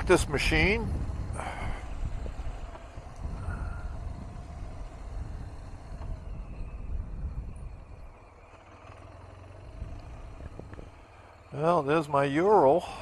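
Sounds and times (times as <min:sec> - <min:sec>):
motorcycle engine rumbling: 0:00.0 - 0:13.0.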